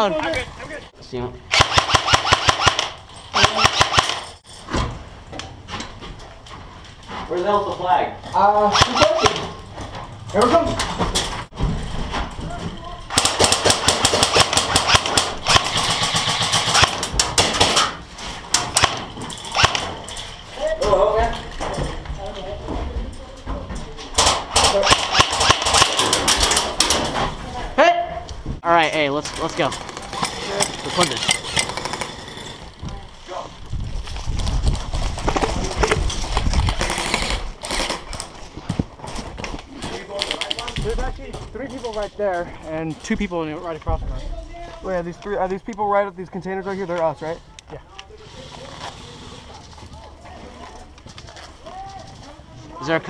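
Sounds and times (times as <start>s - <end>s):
airsoft gunfire: 1.5s - 4.2s, 8.7s - 9.4s, 13.1s - 17.8s, 18.7s - 19.0s, 19.6s - 19.9s, 24.6s - 26.9s
gear rattling: 29.1s - 38.4s
running footsteps on gravel: 48.5s - 52.6s.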